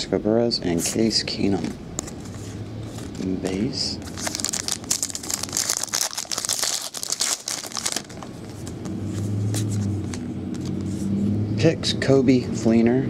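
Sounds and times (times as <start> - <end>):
steady low hum: 0.0 - 13.0
cards rustling: 0.8 - 11.2
foil wrapper crinkling and tearing: 3.0 - 8.8.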